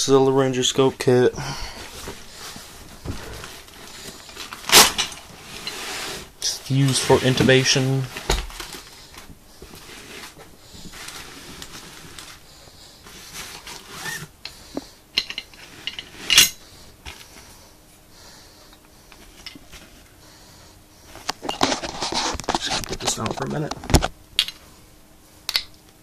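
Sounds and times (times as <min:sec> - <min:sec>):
cloth and plastic rustling: 0:01.8 - 0:12.4, 0:21.2 - 0:24.1.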